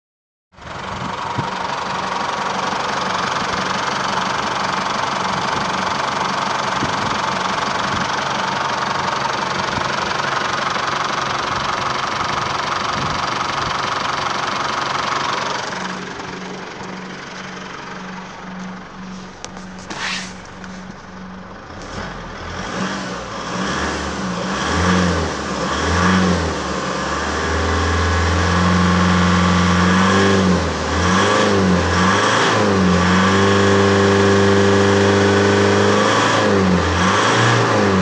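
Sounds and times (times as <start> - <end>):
diesel engine idling: 0.6 - 30.0.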